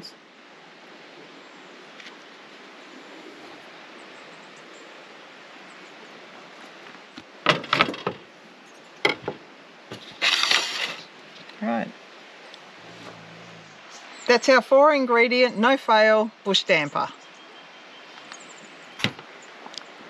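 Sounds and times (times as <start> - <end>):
faint outdoor hiss: 0.0 - 20.0
spoon scraping rustle: 10.0 - 11.1.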